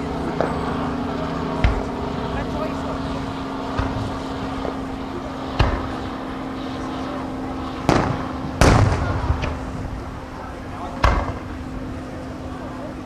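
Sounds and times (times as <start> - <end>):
steady low hum: 0.0 - 13.0
fireworks bursting in bangs: 7.8 - 9.7.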